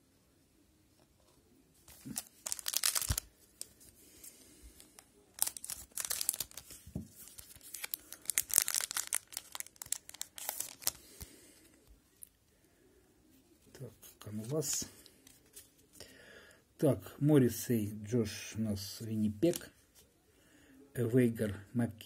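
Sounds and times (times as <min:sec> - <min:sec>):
wrapper tearing and crinkling: 0:01.9 - 0:03.8, 0:05.3 - 0:11.2.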